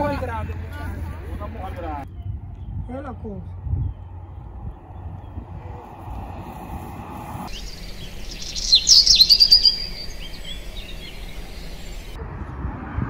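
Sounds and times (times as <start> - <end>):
bird chirping: 7.5 - 12.2.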